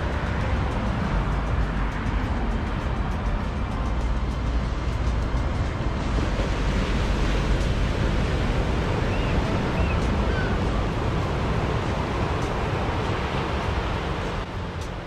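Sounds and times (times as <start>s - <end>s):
ocean surf breaking on beach: 0.0s - 15.0s
wind on microphone: 0.0s - 15.0s.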